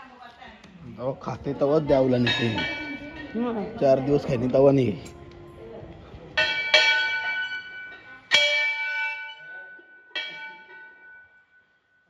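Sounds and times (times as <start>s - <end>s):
metal bell ringing: 2.1s - 5.0s, 6.4s - 12.0s.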